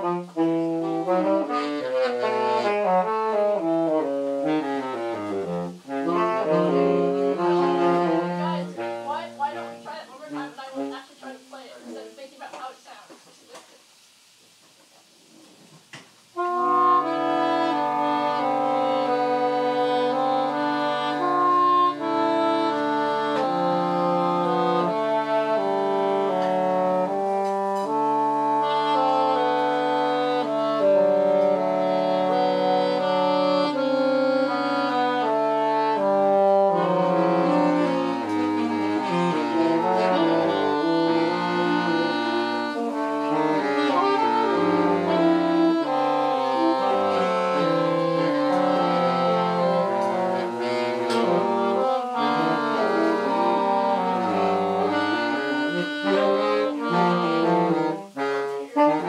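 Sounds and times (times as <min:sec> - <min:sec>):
wind quartet playing: 0:00.0 - 0:12.2, 0:16.2 - 0:59.0.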